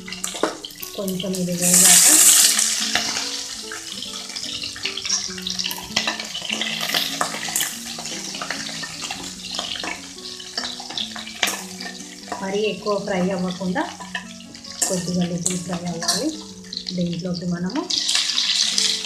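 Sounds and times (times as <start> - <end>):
onions sizzling in hot oil: 0.0 - 19.0
ladle scraping a pan: 4.7 - 12.6, 17.9 - 19.0.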